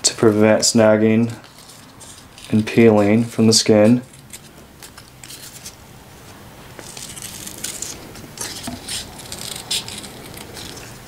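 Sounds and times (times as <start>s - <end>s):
scissors snipping tape: 6.8s - 11.0s.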